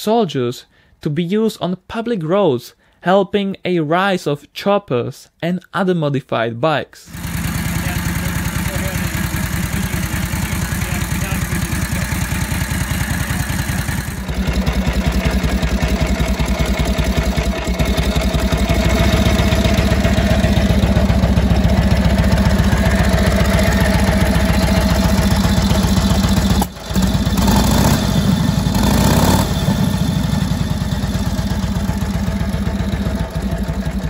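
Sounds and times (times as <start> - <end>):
motorcycle engine running: 7.1 - 34.0.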